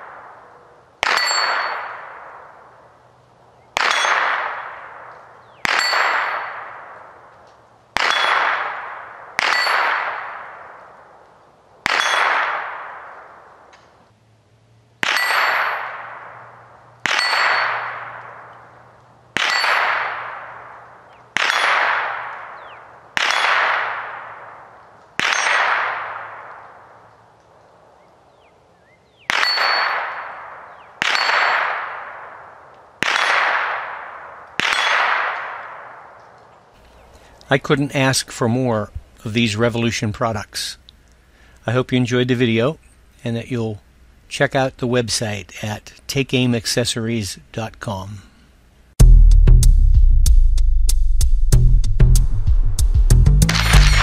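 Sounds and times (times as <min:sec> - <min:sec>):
bullets clanging on steel plates: 0:01.0 - 0:02.1, 0:03.8 - 0:04.4, 0:05.6 - 0:06.6, 0:08.0 - 0:08.6, 0:09.4 - 0:10.1, 0:15.0 - 0:16.0, 0:17.0 - 0:18.1, 0:19.4 - 0:20.3.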